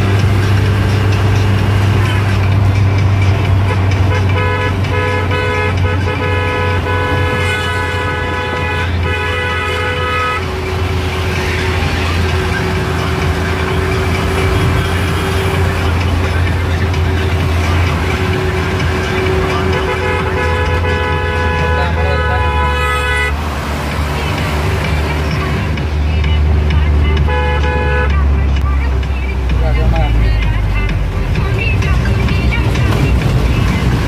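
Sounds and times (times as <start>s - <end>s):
vehicle engine and road noise: 0.0s - 34.0s
vehicle horn honking: 3.6s - 11.4s, 18.4s - 23.4s, 27.2s - 28.3s.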